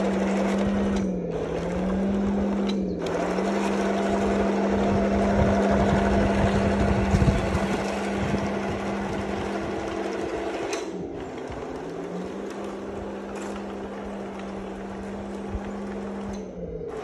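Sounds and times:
heavy low rumble: 0.0s - 17.0s
toy tank motors whining: 0.0s - 17.0s
click: 16.2s - 16.5s.

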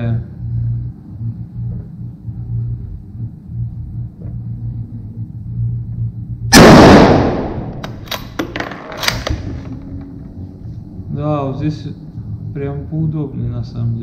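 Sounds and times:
low steady hum: 0.0s - 14.0s
rifle shot echoing: 6.5s - 8.4s
rifle bolt clicks: 7.7s - 9.5s.

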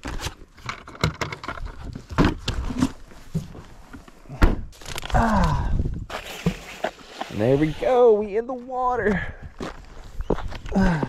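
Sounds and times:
rubber gloves rustling: 6.1s - 8.8s.

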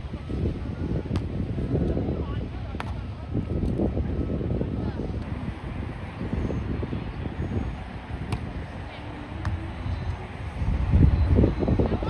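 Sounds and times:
wind buffeting microphone: 0.0s - 12.0s
volleyball being struck: 8.2s - 8.6s.

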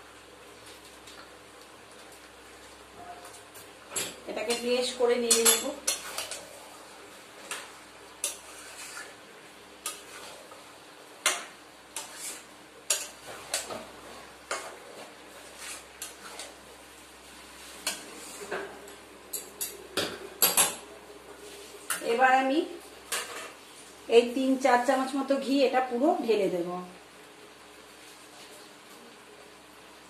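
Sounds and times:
spoon stirring in metal pan: 4.0s - 18.7s, 23.1s - 23.6s.

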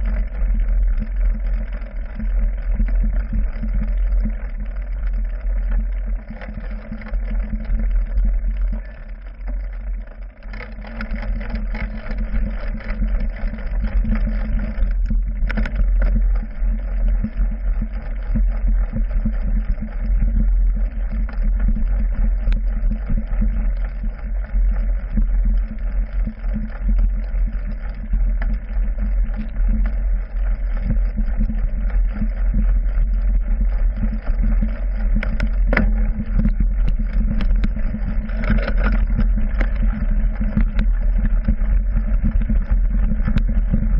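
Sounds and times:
bike rumbling on dirt trail: 0.0s - 43.9s
rapid rattling and knocking: 0.0s - 43.9s.

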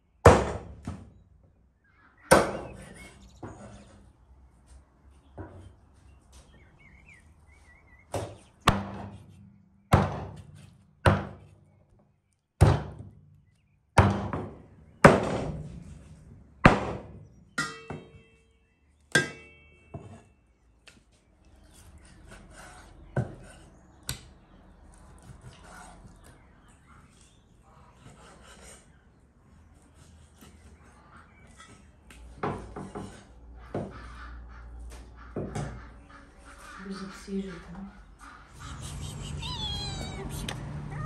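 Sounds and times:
cleaver chopping meat on wood: 8.2s - 11.5s, 12.6s - 13.2s, 14.0s - 15.5s, 16.7s - 18.1s.

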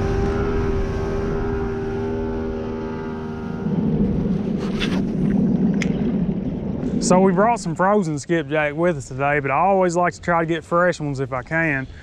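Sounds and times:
outboard motor running: 0.0s - 7.9s
rough low rumbling: 0.0s - 9.8s.

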